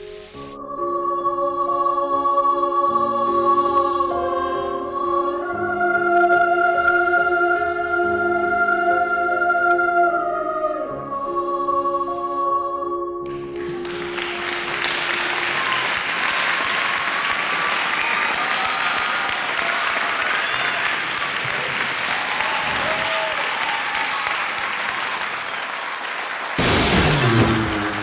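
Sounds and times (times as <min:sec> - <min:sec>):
held sung note: 0:06.5 - 0:07.5, 0:08.4 - 0:09.8
audience applauding: 0:13.3 - 0:28.0
sudden loud burst: 0:26.6 - 0:28.0.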